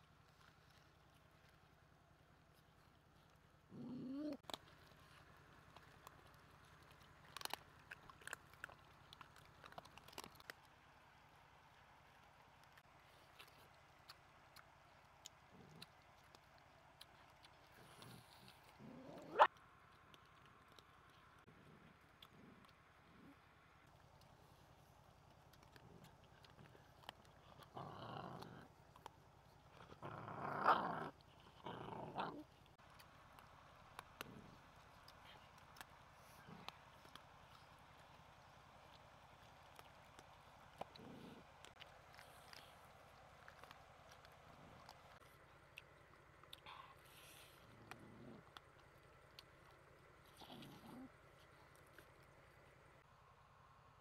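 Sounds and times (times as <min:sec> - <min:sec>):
puppies chewing and crunching: 0:00.0 - 0:54.0
dogs growling: 0:03.6 - 0:04.8, 0:15.4 - 0:16.2, 0:17.6 - 0:19.5, 0:21.5 - 0:23.5, 0:25.7 - 0:32.8, 0:34.0 - 0:35.5, 0:36.1 - 0:37.6, 0:39.4 - 0:45.3, 0:46.6 - 0:52.2.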